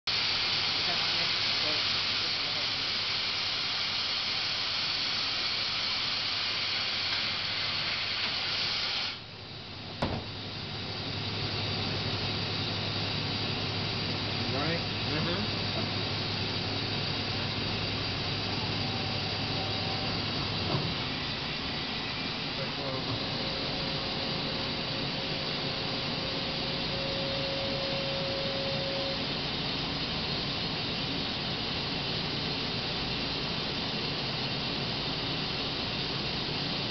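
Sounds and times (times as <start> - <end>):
steady hiss: 0.1 - 36.9
thin steady whine: 0.1 - 36.9
low machine hum: 9.3 - 36.9.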